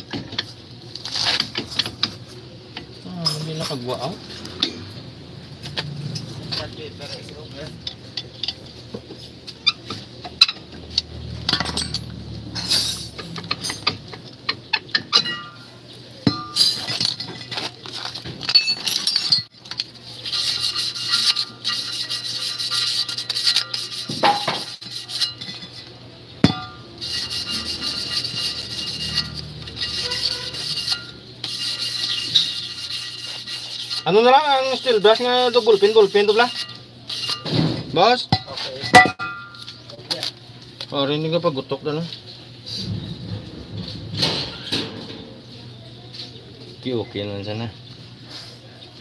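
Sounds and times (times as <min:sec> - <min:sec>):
scraping at brake drum: 0:05.6 - 0:15.7, 0:20.1 - 0:39.8
metal clinks and knocks: 0:09.8 - 0:15.6, 0:16.2 - 0:19.8.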